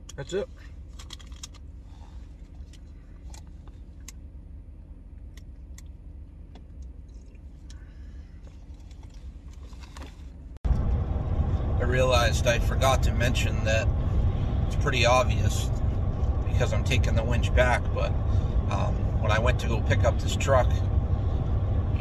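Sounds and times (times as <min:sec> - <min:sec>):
vehicle idling hum: 0:00.0 - 0:22.0.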